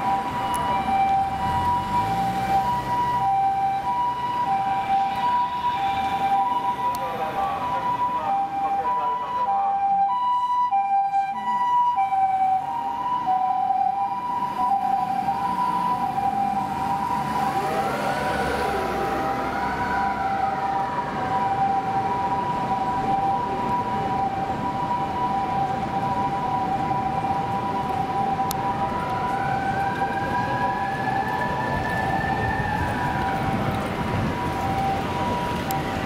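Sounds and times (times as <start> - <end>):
street traffic: 0.0 - 36.0
two-tone ambulance siren: 0.0 - 36.0
wailing siren: 0.0 - 36.0.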